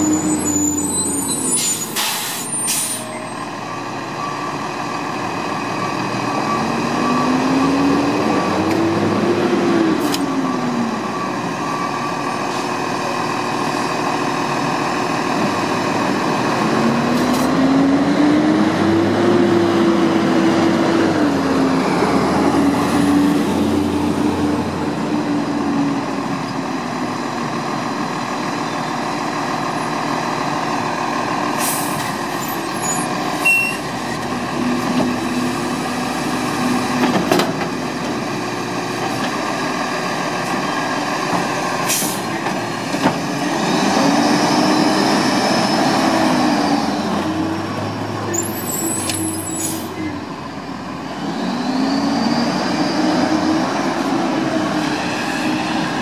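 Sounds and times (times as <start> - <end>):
garbage truck engine revving: 34.2 - 49.1.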